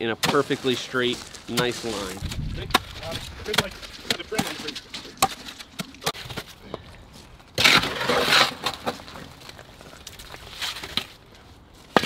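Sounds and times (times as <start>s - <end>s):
stones crunching into hole: 1.3s - 5.5s
shovel scraping gravel: 7.6s - 11.1s.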